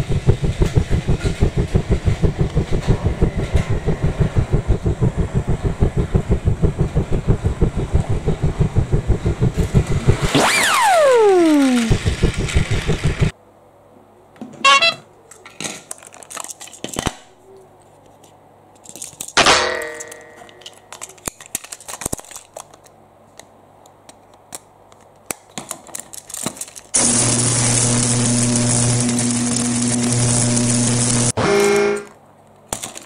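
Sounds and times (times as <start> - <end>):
toy train whirring: 10.5 - 13.3
plastic toy pieces clicking: 15.4 - 17.2, 18.8 - 19.4, 20.5 - 23.0, 24.1 - 27.0, 32.5 - 33.0.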